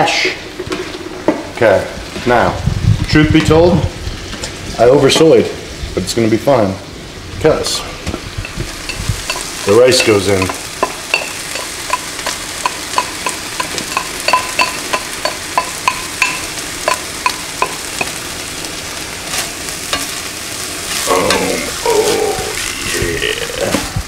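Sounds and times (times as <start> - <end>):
food sizzling in a frying pan: 0.0 - 24.0
spatula tapping a ceramic bowl: 8.9 - 18.2.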